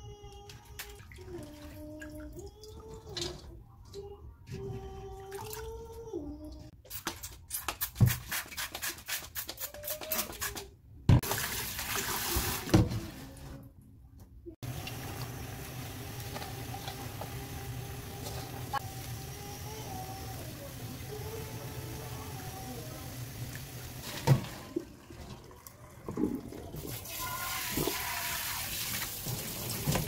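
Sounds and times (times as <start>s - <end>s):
tap water splashing into colander: 11.2s - 12.9s.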